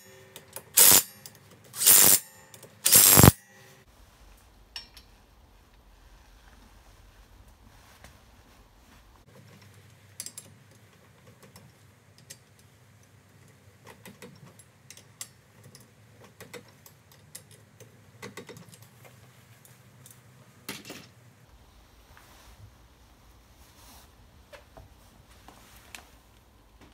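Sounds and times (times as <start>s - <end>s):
socket ratchet clicking: 0.4s - 3.4s.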